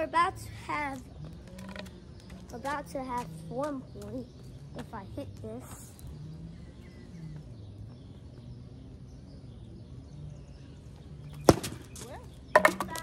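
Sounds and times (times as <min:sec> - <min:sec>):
faint outdoor background noise: 0:00.0 - 0:13.0
plastic bat hitting ball: 0:11.5 - 0:11.9, 0:12.6 - 0:13.0.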